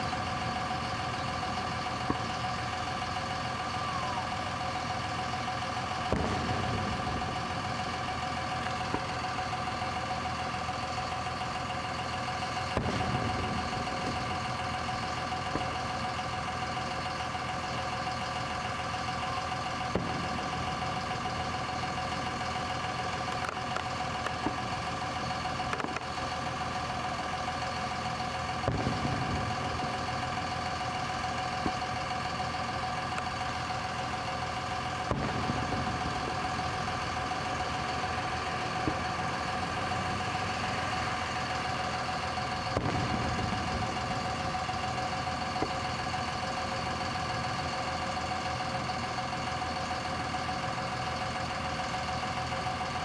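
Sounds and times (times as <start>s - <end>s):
fireworks booming: 0.0s - 3.6s, 4.2s - 17.3s, 19.0s - 47.1s
steady humming drone: 0.0s - 49.3s
faint fireworks pops: 6.1s - 7.8s, 25.7s - 26.1s, 35.0s - 36.0s.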